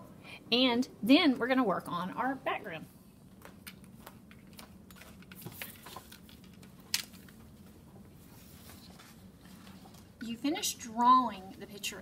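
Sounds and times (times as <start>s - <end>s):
faint steady hum: 0.0s - 12.0s.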